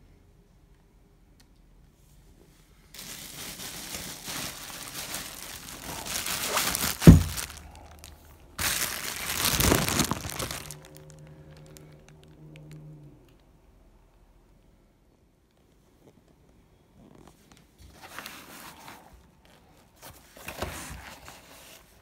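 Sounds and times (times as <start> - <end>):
plastic packaging crinkling: 2.9 - 12.8.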